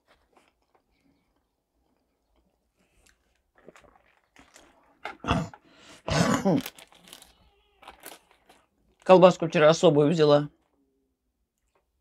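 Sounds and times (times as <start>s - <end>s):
mouth clicks and chewing: 0.2s - 5.3s
loud throat sounds: 5.0s - 6.8s.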